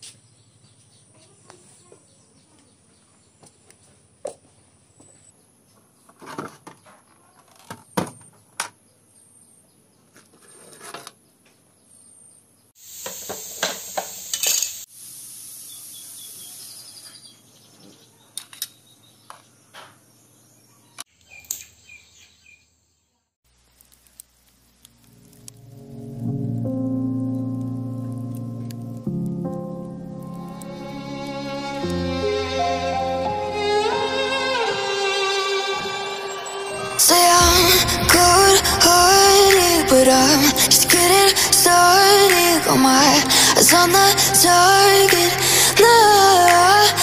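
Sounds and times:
rough hissing noise: 12.8 - 17.0, 37.0 - 47.0.

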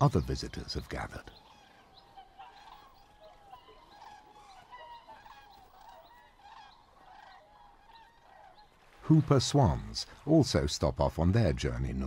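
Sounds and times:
swans calling: 0.0 - 10.2.

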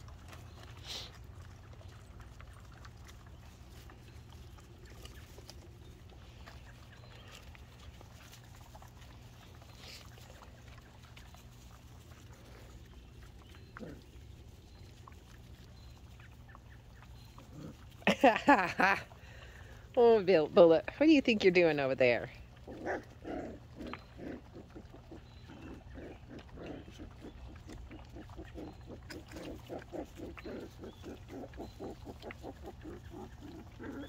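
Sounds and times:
puppy grunt: 13.5 - 14.4, 17.3 - 18.2, 22.6 - 34.0.

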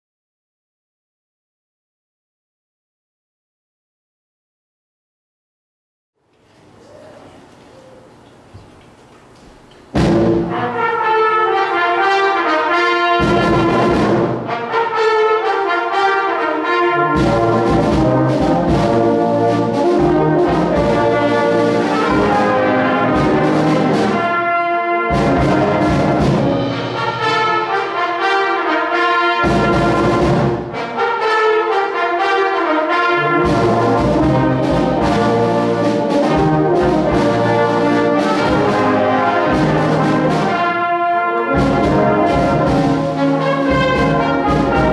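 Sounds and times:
brass band playing: 8.8 - 44.9
full-band hits with drums: 9.9 - 11.2, 13.2 - 14.5, 17.1 - 24.4, 25.1 - 27.9, 29.4 - 30.8, 33.4 - 40.9, 41.5 - 44.9.

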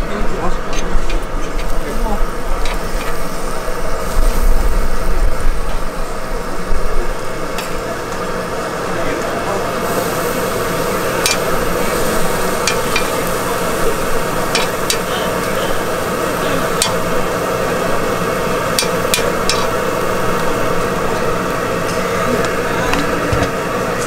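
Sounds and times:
food sizzling on a griddle: 1.6 - 24.0
spatulas tapping and scraping metal: 11.2 - 11.5, 12.6 - 13.2, 14.5 - 15.6, 16.7 - 17.1, 18.8 - 19.7.

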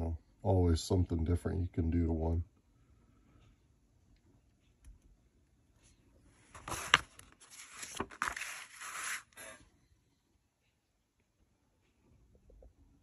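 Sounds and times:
magazine pages rustling: 6.4 - 9.6.

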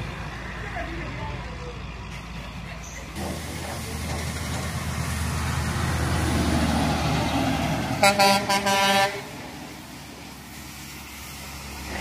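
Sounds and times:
truck engine and tyre noise: 0.0 - 12.0
truck horn toots: 8.0 - 9.4.

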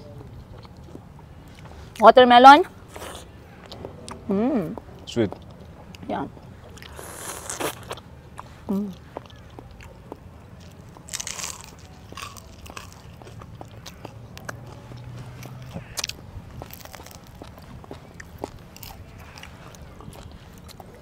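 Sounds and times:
chewing with wet mouth clicks: 0.3 - 2.0, 2.9 - 21.0
juicy bite into watermelon: 6.8 - 8.0.

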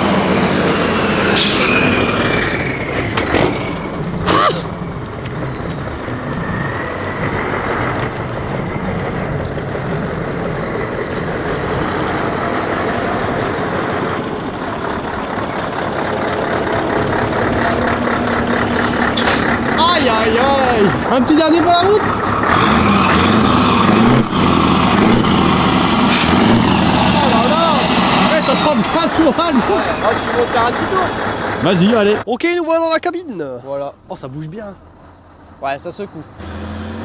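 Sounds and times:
truck engine running: 0.0 - 32.3.

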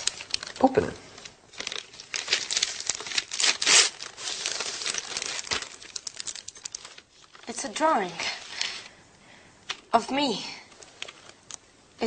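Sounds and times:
gift wrapping paper crinkling: 0.0 - 7.6.

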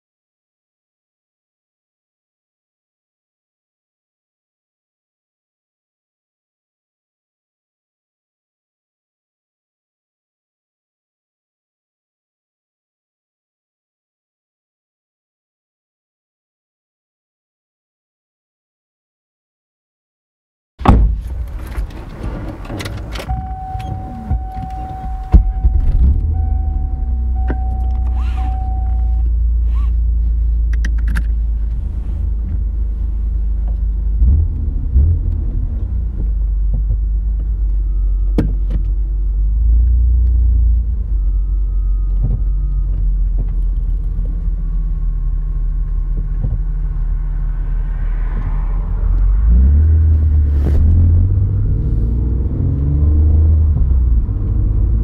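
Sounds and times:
car engine starting and idling: 20.8 - 55.0.

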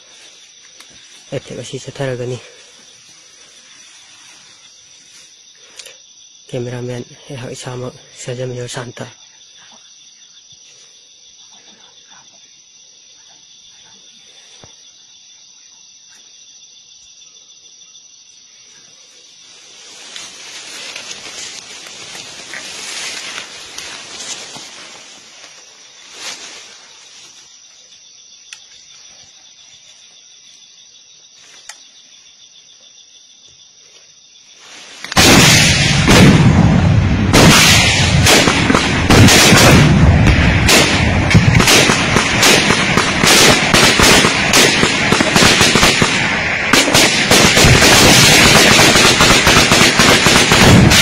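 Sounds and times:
insects humming: 0.0 - 51.0
rapid gunfire: 35.2 - 51.0.

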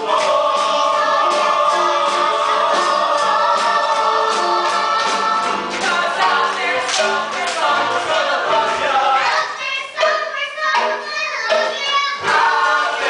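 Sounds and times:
ensemble singing a chorus: 0.0 - 10.1, 12.2 - 13.0.

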